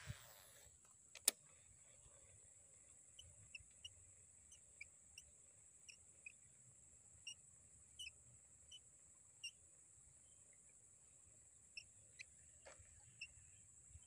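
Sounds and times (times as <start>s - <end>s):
sharp click: 1.1s - 1.4s.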